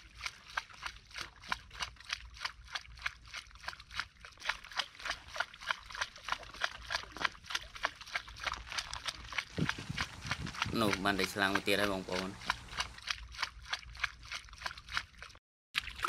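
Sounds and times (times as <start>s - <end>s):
rapid high clicking: 9.6s - 13.0s.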